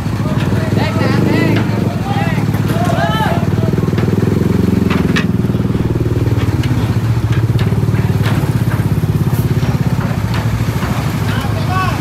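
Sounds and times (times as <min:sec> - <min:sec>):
small motorcycle engines: 0:00.0 - 0:12.0
low engine drone: 0:04.5 - 0:09.6
sharp knocks: 0:04.8 - 0:10.5.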